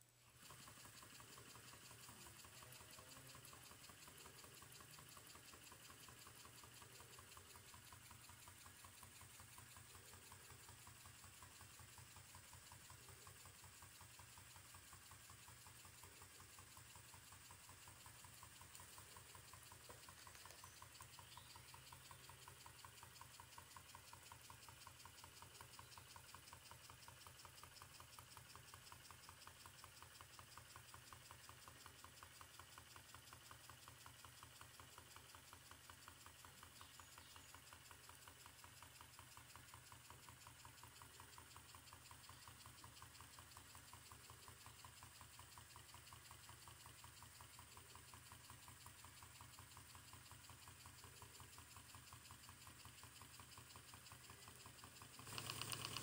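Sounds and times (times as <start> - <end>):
steam engine running: 0.3 - 56.0.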